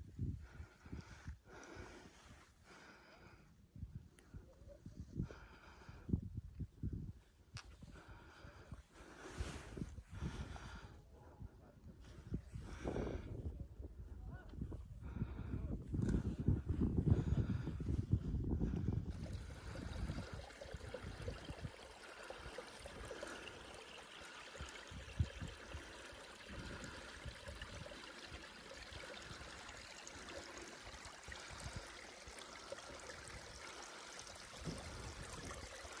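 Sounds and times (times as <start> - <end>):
stream running: 18.7 - 36.0.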